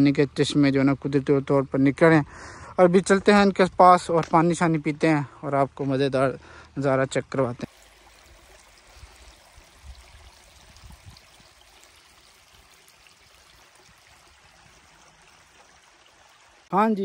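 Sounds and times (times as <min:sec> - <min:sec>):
stream flowing over gravel: 0:07.6 - 0:17.0.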